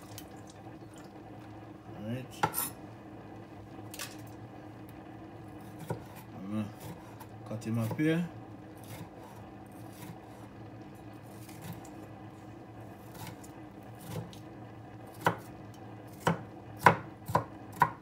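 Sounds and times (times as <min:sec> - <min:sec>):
knife chopping on wooden board: 0:02.4 - 0:02.7, 0:05.6 - 0:06.2, 0:15.1 - 0:15.5, 0:16.1 - 0:18.0.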